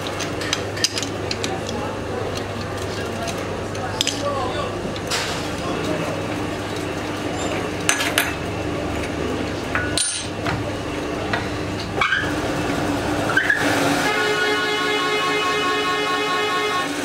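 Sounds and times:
metal lathe humming: 10.9 - 17.0.

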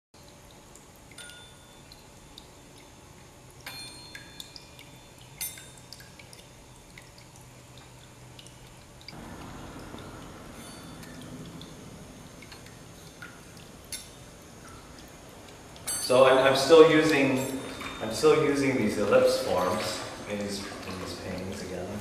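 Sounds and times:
high tinkling chime pings: 1.2 - 1.8, 3.7 - 5.6, 10.6 - 11.2, 17.2 - 18.2.

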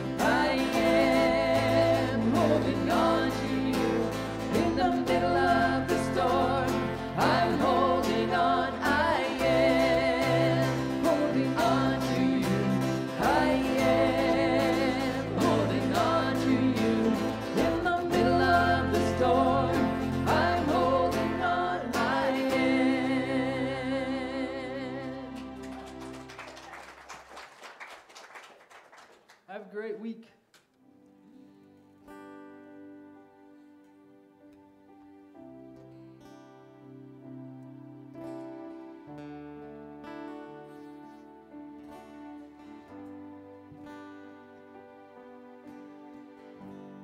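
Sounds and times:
electric bass: 0.0 - 25.6
person singing: 0.0 - 25.8
keyboard: 0.0 - 27.1
acoustic guitar: 0.0 - 27.3, 30.6 - 47.0.

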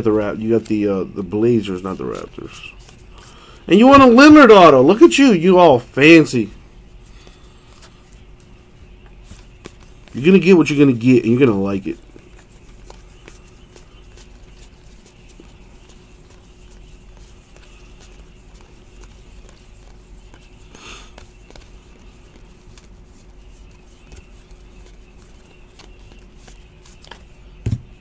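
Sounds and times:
faint steady hum: 0.0 - 28.0
card rustle: 1.4 - 5.1, 7.1 - 28.0
cards clicking and sliding: 9.2 - 28.0.

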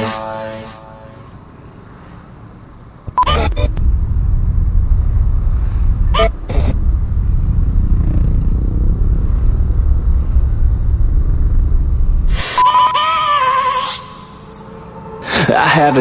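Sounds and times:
motor scooter engine: 3.1 - 10.9
wind buffeting microphone: 3.7 - 12.6.

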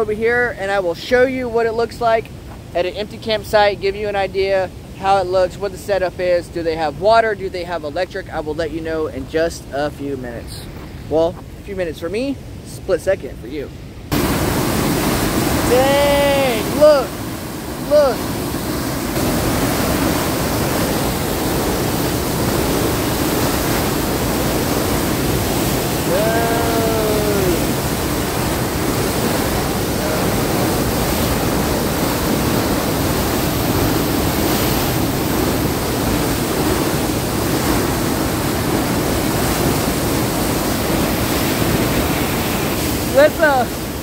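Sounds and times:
water rushing through channel: 14.1 - 44.0.

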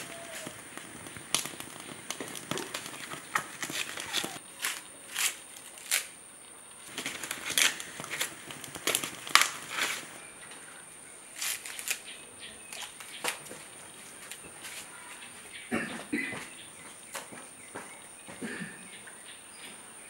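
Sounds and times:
maize husks crackling: 0.0 - 19.6.

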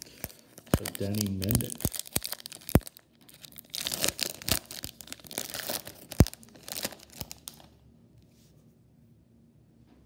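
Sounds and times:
wrapper tearing and crinkling: 0.0 - 7.8.

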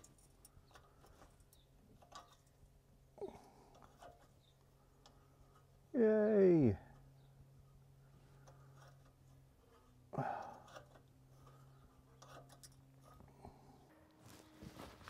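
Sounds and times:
hand tool scratching and clicking: 10.6 - 13.2.

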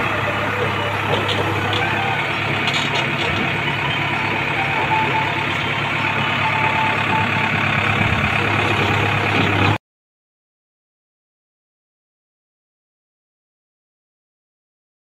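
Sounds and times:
backhoe arm and bucket working: 0.0 - 9.8
diesel engine running: 0.0 - 9.8.

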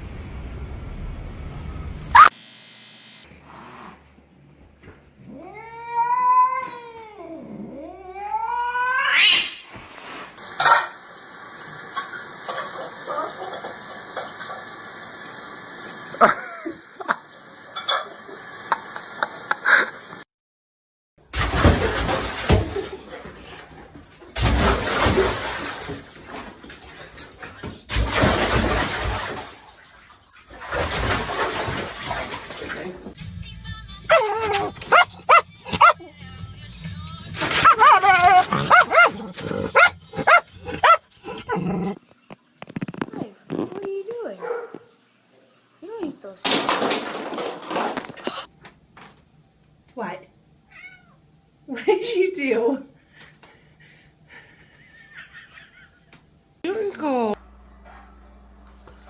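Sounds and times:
cat yowling: 5.3 - 9.6, 34.1 - 36.0, 37.6 - 41.4, 50.7 - 51.2
dog splashing into bathtub: 21.3 - 33.2, 37.4 - 41.0, 46.4 - 48.5
water sloshing: 27.9 - 33.2, 37.4 - 41.5.

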